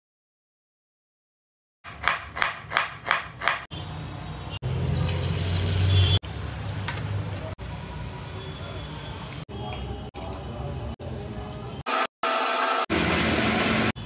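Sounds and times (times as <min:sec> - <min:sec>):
blender grinding spices: 0:11.9 - 0:13.9.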